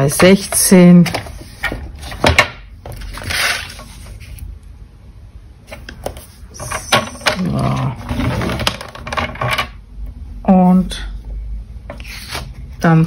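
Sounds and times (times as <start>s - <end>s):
paper sliding and rustling: 1.0s - 4.5s.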